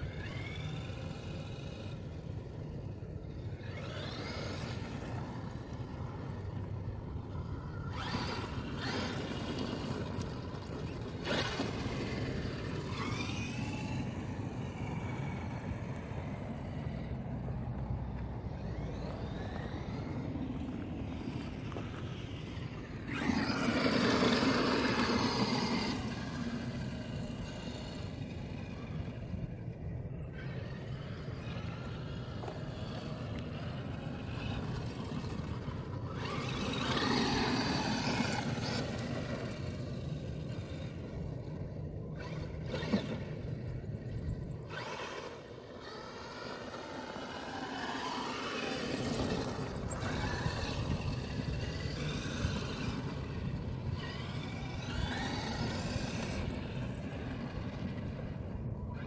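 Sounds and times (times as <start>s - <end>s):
electric motor whining: 0.0s - 59.0s.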